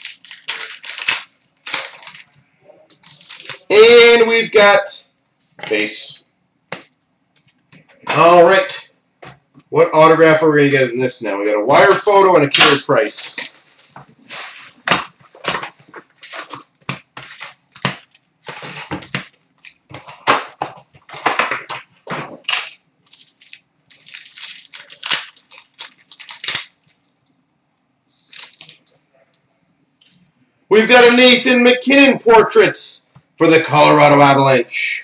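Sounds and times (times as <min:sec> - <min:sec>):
card packs crinkling torn open: 0:00.0 - 0:03.7, 0:15.4 - 0:27.0, 0:28.2 - 0:28.9.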